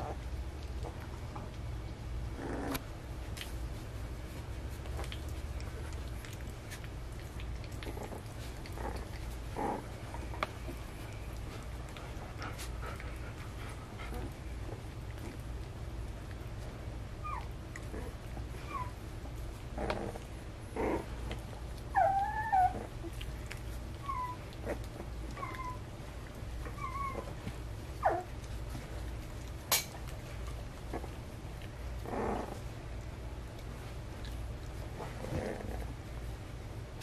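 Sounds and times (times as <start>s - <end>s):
low steady hum: 0.0s - 37.0s
puppy whining: 2.3s - 2.8s, 5.0s - 15.4s, 17.1s - 29.6s, 30.3s - 32.8s, 34.2s - 36.0s
puppies squeaking and whimpering: 17.2s - 19.0s, 21.9s - 23.2s, 24.0s - 25.9s, 26.6s - 28.3s.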